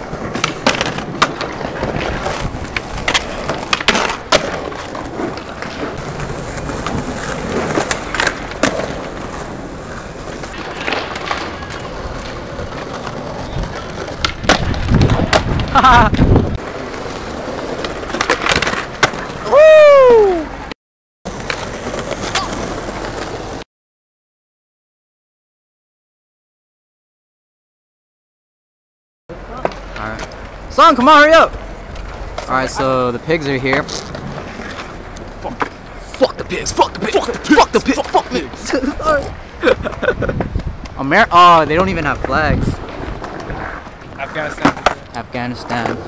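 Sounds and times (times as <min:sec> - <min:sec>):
skateboard clacks: 0:00.0 - 0:19.5, 0:29.3 - 0:41.0, 0:41.6 - 0:46.0
skateboard wheels rolling on stone: 0:00.0 - 0:20.7, 0:21.3 - 0:23.6, 0:29.3 - 0:46.0
loud falling cry: 0:19.4 - 0:20.5.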